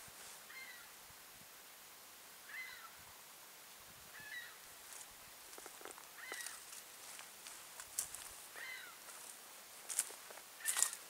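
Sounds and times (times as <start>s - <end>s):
bird calling: 0.4s - 0.9s, 2.4s - 3.0s, 4.1s - 4.6s, 6.2s - 6.7s, 8.5s - 9.1s, 10.6s - 11.0s
footsteps crunching on forest floor: 4.8s - 11.0s.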